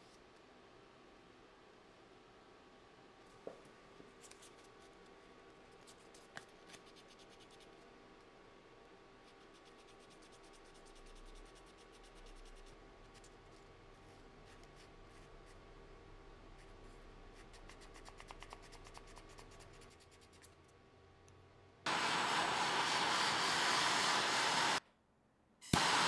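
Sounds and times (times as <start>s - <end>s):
torch flame hissing: 21.9s - 24.8s, 25.7s - 26.0s.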